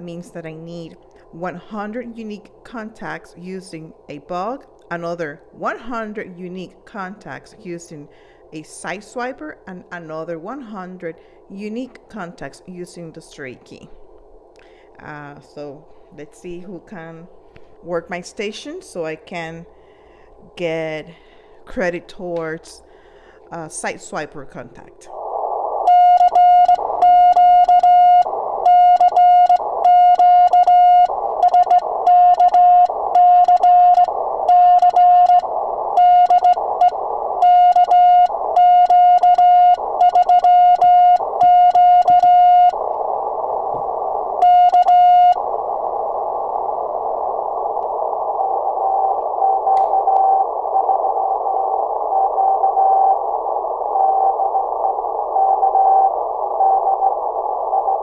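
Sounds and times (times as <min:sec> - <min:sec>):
receiver hiss: 0:00.0 - 0:58.0
faint higher morse signal: 0:25.1 - 0:58.0
morse code sidetone: 0:25.8 - 0:47.6, 0:48.8 - 0:53.2, 0:53.8 - 0:58.0.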